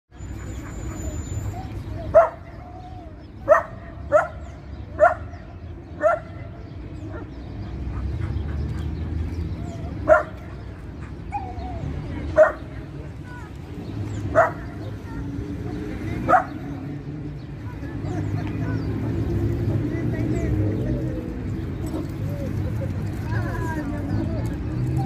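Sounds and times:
dog barking: 2.1 - 2.4, 3.4 - 5.4, 6.0 - 6.4, 10.0 - 10.4, 12.4 - 12.7, 14.3 - 14.8, 16.3 - 16.6.

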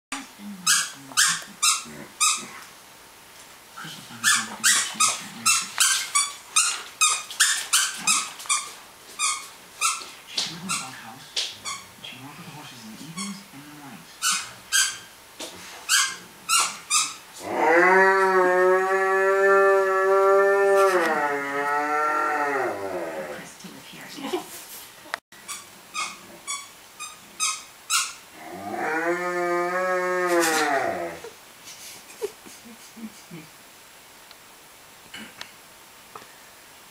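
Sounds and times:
dog toy squeaking: 0.6 - 2.5, 4.2 - 10.1, 10.7 - 10.9, 14.2 - 15.1, 15.9 - 17.2, 25.4 - 28.2
dog howling: 17.4 - 23.4, 28.4 - 31.3.

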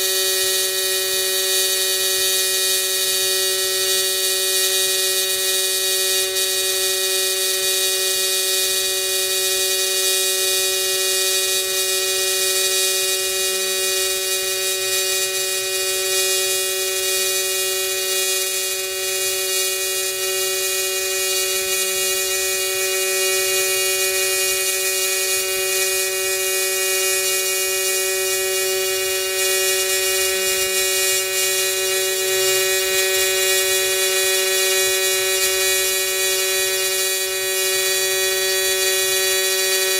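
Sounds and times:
welding arc buzzing: 0.0 - 39.9.

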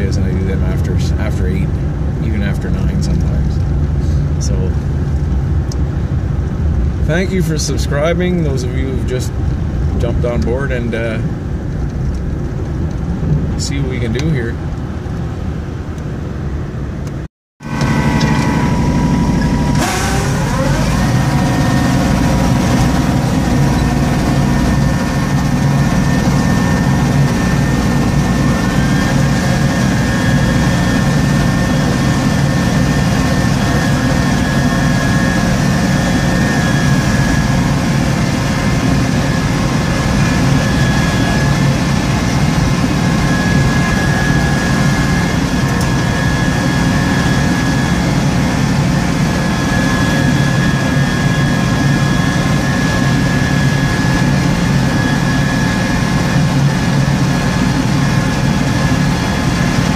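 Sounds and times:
high whine: 0.0 - 59.9
truck road noise: 0.0 - 59.9
tractor engine under load: 17.6 - 46.9.

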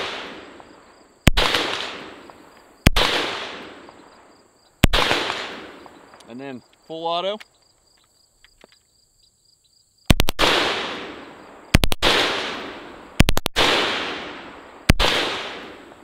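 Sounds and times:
automatic gunfire bursts with echo: 0.0 - 0.4, 1.2 - 2.1, 2.8 - 3.7, 4.8 - 5.7, 10.1 - 15.8.

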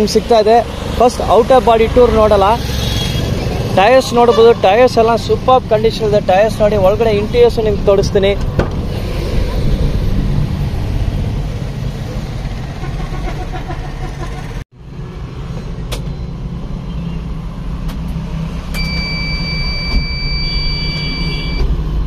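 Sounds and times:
dashboard warning buzzer beep: 18.8 - 21.7.

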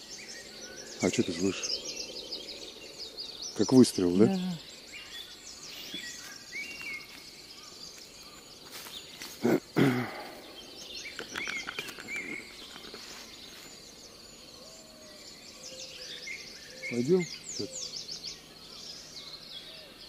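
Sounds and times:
low bird calls: 0.0 - 20.0
small birds chirping: 0.0 - 20.0.

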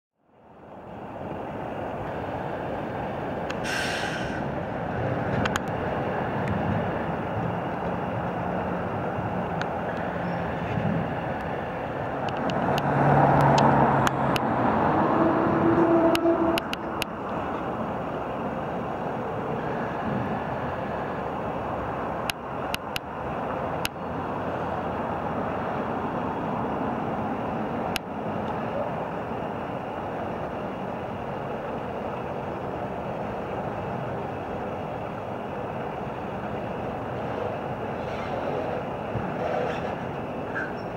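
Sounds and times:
lorry diesel engine running: 0.2 - 40.9
street traffic noise: 0.2 - 40.9.

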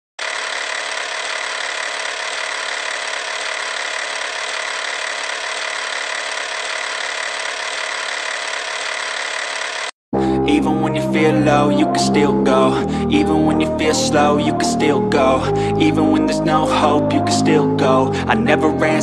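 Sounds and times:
film projector whirring: 0.2 - 9.9.

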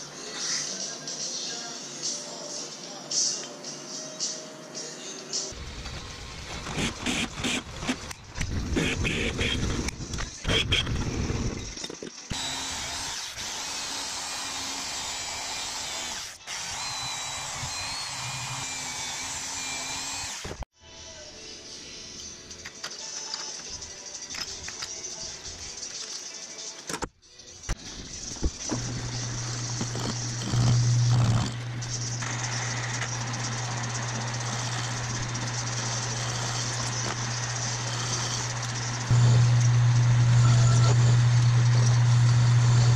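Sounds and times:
metal lathe humming: 12.3 - 20.5, 28.7 - 42.9
band saw cutting steel: 12.3 - 20.6, 28.1 - 42.9.

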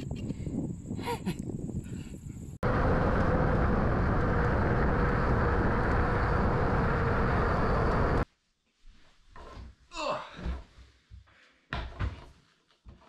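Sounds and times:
wind buffeting microphone: 0.0 - 8.2
bike tyres rolling on pavement: 2.6 - 8.2.

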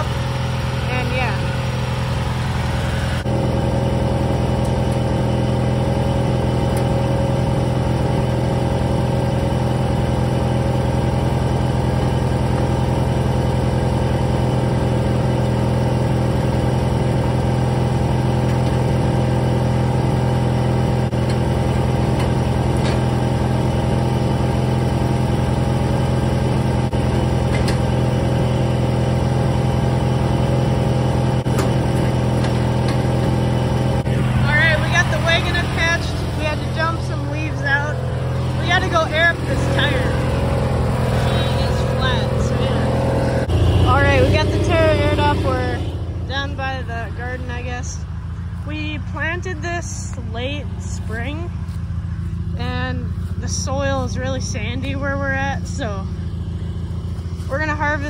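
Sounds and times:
lawn tractor engine idling: 0.0 - 58.0.

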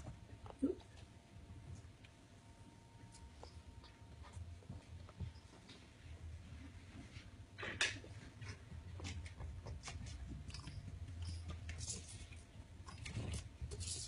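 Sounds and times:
kittens clicking and scuffing: 8.0 - 14.0.

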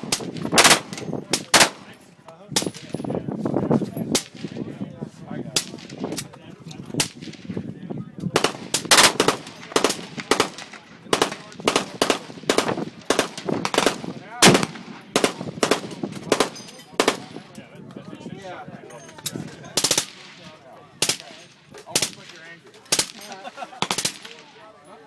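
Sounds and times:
other gunfire: 0.0 - 1.9, 8.3 - 17.4
pistol shots: 0.0 - 1.9, 8.4 - 17.4.

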